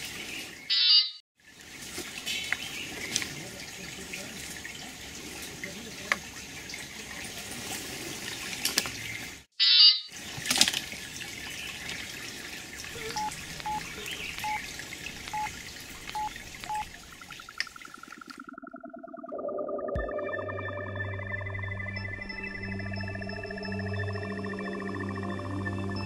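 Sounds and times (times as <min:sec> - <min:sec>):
stream running over rocks: 0:01.4 - 0:09.5, 0:10.1 - 0:18.3
short electronic beeps: 0:13.0 - 0:14.6, 0:15.3 - 0:15.5, 0:16.2 - 0:16.9.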